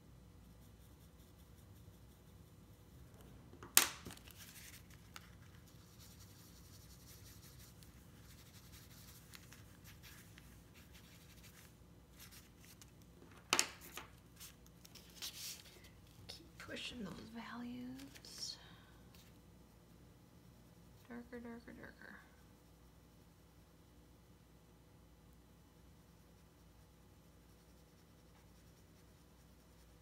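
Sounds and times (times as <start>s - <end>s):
pencil scratching on paper: 0.4s - 3.0s, 4.4s - 12.8s, 26.0s - 30.0s.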